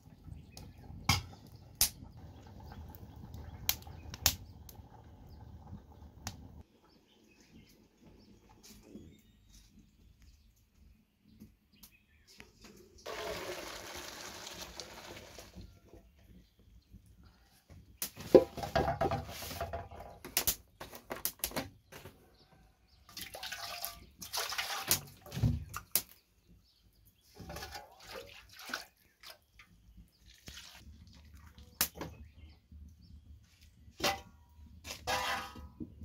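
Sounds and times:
metal pots clinking: 0:01.0 - 0:01.4, 0:34.0 - 0:36.0
water splashing and dripping: 0:13.1 - 0:15.7, 0:23.0 - 0:26.2, 0:27.3 - 0:32.2.

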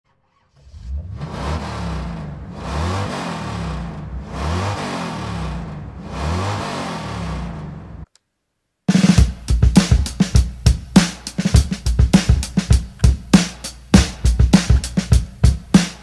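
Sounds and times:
car engine revving: 0:00.2 - 0:08.1.

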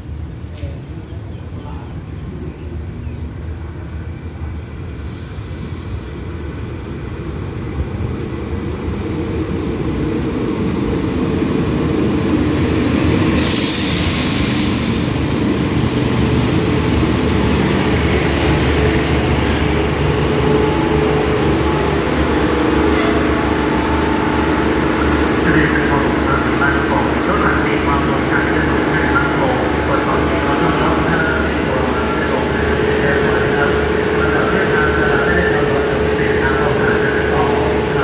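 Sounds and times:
diesel train engine and wheels: 0:00.0 - 0:38.0
air hiss: 0:13.3 - 0:15.2.

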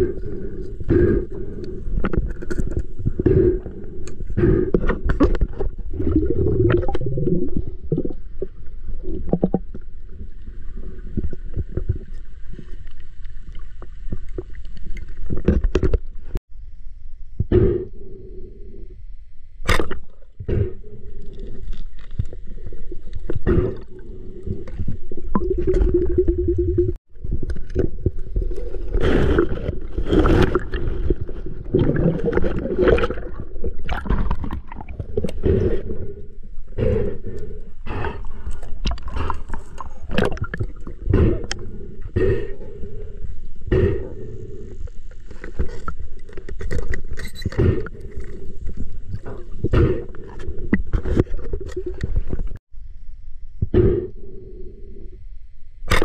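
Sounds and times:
water sloshing and gurgling: 0:00.0 - 0:16.4, 0:19.5 - 0:52.6.

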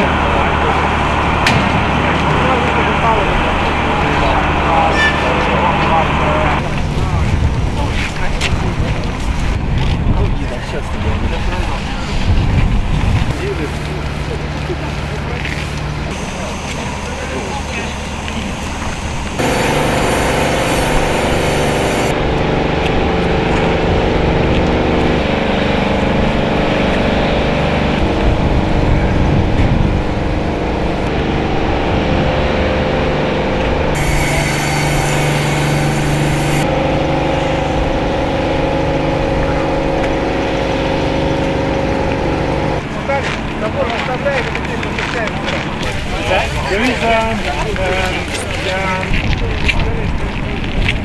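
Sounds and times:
machinery humming: 0:00.0 - 0:07.5, 0:14.4 - 0:43.7.

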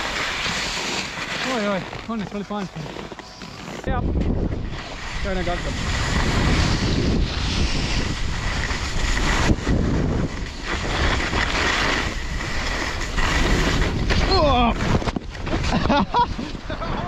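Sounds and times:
skis scraping over snow: 0:00.0 - 0:16.8
wind buffeting microphone: 0:03.8 - 0:17.0.

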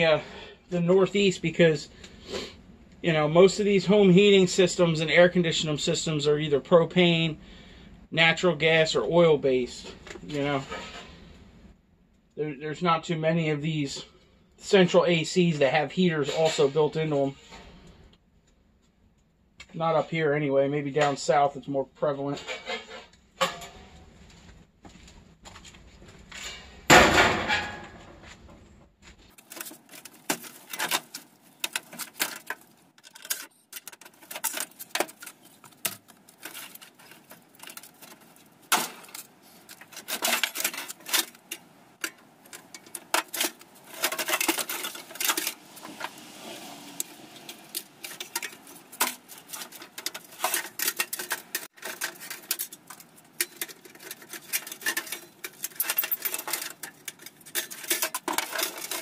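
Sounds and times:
scrap metal clanking and rattling: 0:09.8 - 0:11.5, 0:16.1 - 0:18.0, 0:22.2 - 0:24.4, 0:25.6 - 0:28.6, 0:29.2 - 0:59.0
metal piece crashing into truck bed: 0:26.5 - 0:28.2, 0:38.7 - 0:39.2.

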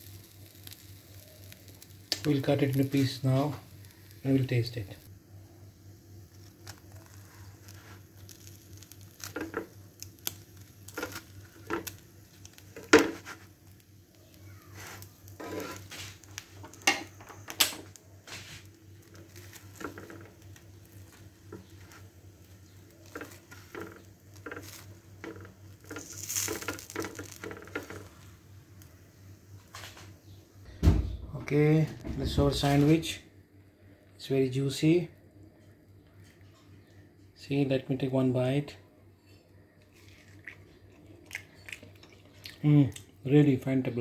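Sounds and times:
steady low hum: 0:00.0 - 0:44.0
knife scraping on griddle pan: 0:14.8 - 0:16.2.

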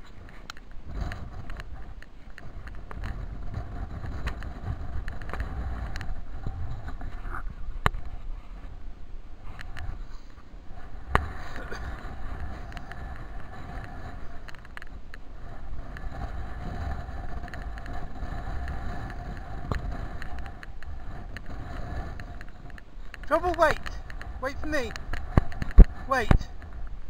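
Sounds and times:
faint steady hum: 0:00.0 - 0:27.0
wind rumbling on microphone: 0:00.0 - 0:27.0.

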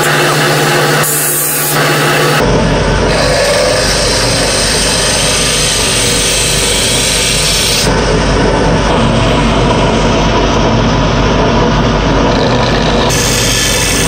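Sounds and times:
lathe motor hum: 0:00.0 - 0:14.0.

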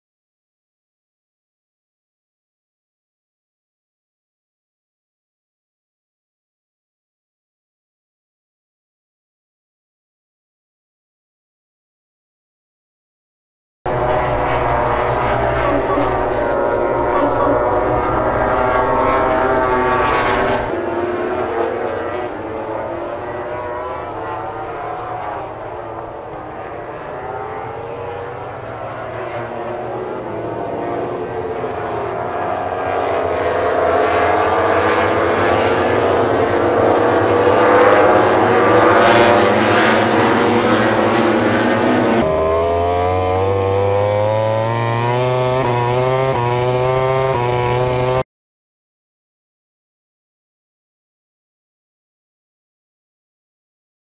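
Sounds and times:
race motorcycles passing: 0:13.9 - 0:48.2
motorcycle engine revving through upshifts: 0:13.9 - 0:48.3.

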